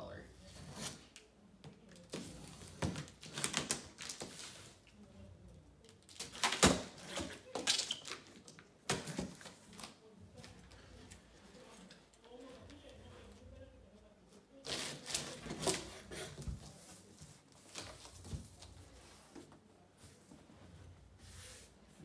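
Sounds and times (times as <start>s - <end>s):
cardboard scraping: 14.6s - 19.6s.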